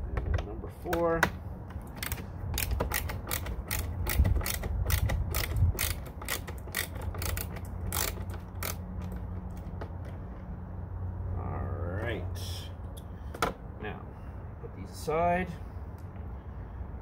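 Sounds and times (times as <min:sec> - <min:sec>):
ratcheting screwdriver clicking: 0:01.8 - 0:09.2.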